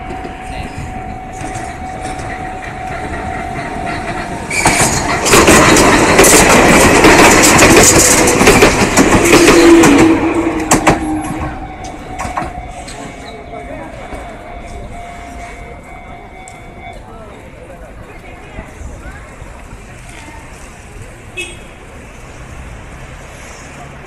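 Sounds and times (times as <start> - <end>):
train wheels clattering over rail joints: 0.0 - 13.3.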